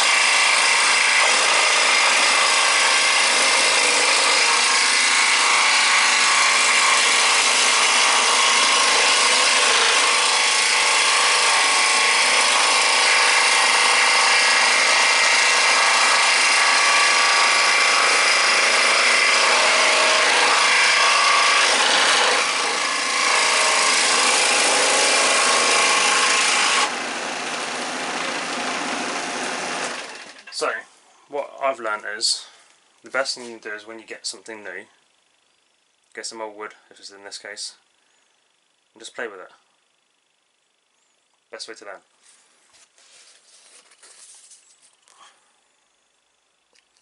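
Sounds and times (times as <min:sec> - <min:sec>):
scroll saw cutting wood: 0:00.0 - 0:30.6.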